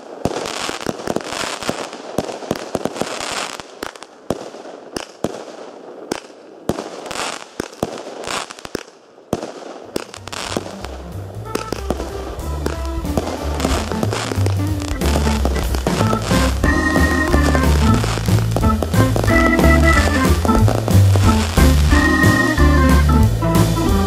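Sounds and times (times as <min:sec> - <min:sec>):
fireworks bangs and crackling: 0:00.0 - 0:24.0
music with bass line: 0:10.3 - 0:24.0.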